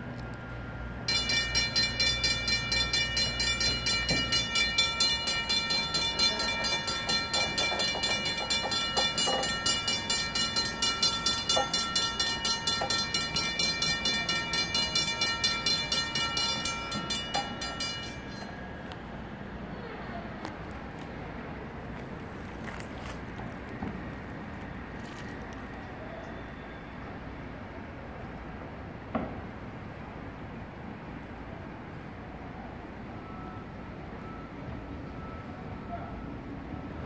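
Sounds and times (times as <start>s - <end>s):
railroad crossing bells ringing: 0.4s - 20.0s, 31.6s - 37.0s.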